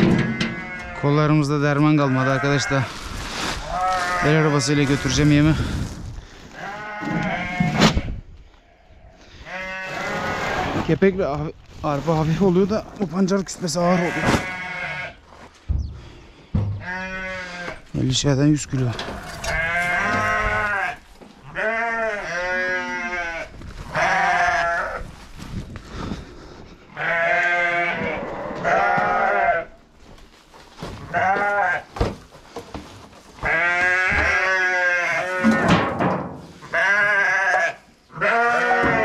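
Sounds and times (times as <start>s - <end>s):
sheep bleating: 0.0s - 3.0s, 3.6s - 5.6s, 6.5s - 8.1s, 8.7s - 10.8s, 13.8s - 15.2s, 16.8s - 17.9s, 19.0s - 25.0s, 27.0s - 29.7s, 31.0s - 31.9s, 33.4s - 35.8s, 36.6s - 39.0s.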